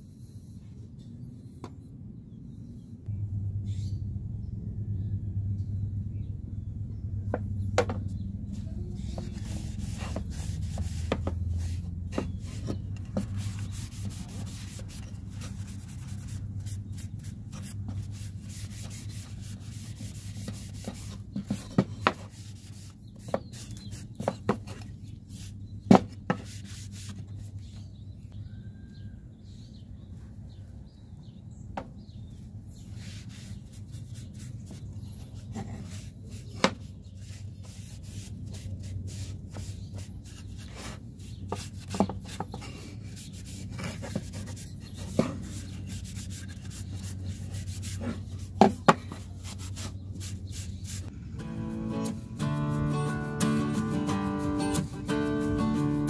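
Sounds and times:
steady low hum: 0:00.0 - 0:24.2, 0:32.2 - 0:54.0
cloth rubbing over wood: 0:09.0 - 0:21.2.

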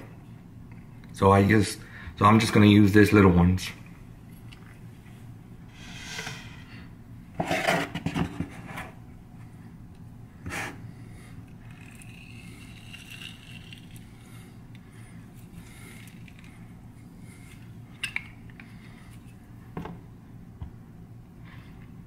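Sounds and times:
citrus squeezer scraping and clatter: 0:11.6 - 0:14.1.

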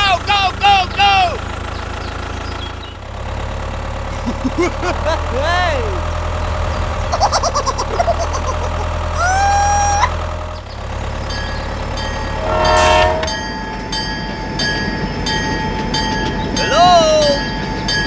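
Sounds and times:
low engine hum: 0:00.0 - 0:16.6
chirpy squeaks: 0:06.8 - 0:13.6
train running with rhythmic clicking: 0:10.4 - 0:18.0
short rising toot: 0:12.2 - 0:13.7
train horn: 0:12.3 - 0:13.7.

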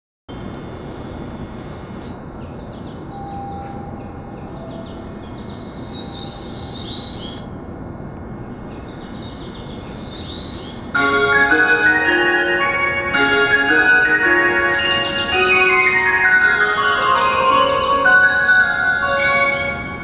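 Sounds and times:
platform hum: 0:00.3 - 0:20.0
recorded bird chirping from speaker: 0:01.5 - 0:07.5, 0:08.4 - 0:11.0.

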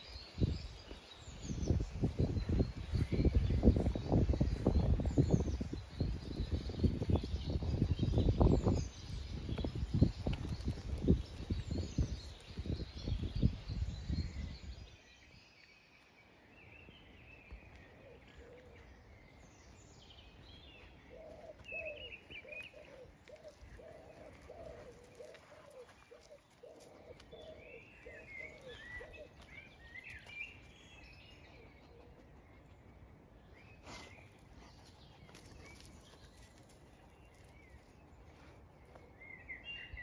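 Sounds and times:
birds singing: 0:00.0 - 0:40.0
pigeon cooing: 0:21.1 - 0:29.4.

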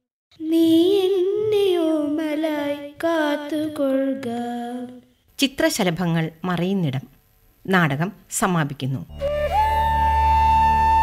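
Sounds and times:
girl singing: 0:00.3 - 0:05.2.

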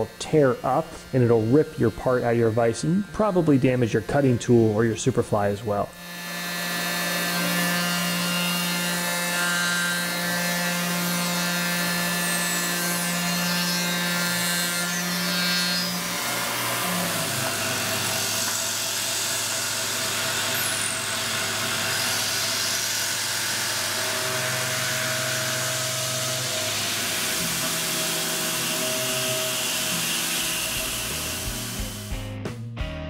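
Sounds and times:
mill spindle cutting whine: 0:00.0 - 0:32.1.

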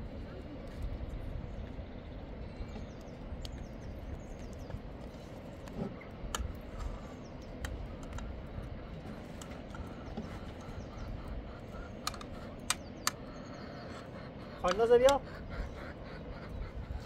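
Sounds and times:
steady low rumble: 0:00.0 - 0:17.0
sharp clicks: 0:07.6 - 0:08.4, 0:12.0 - 0:13.4, 0:14.6 - 0:15.2.

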